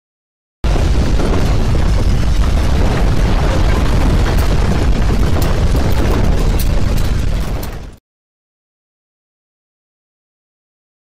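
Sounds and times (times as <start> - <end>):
landslide rumble: 0.6 - 8.0.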